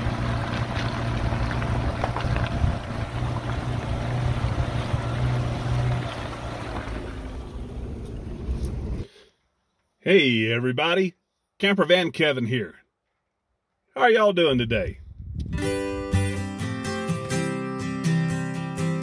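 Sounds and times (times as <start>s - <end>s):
scattered crackles: 0.0s - 7.0s
low engine drone: 0.0s - 9.1s
tyres on gravel: 0.0s - 9.1s
wind on microphone: 15.0s - 15.7s.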